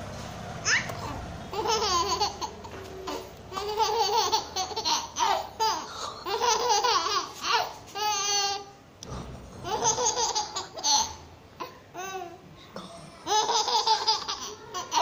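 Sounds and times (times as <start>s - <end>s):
baby laughing: 0.6s - 8.7s, 9.6s - 12.4s, 13.2s - 15.0s.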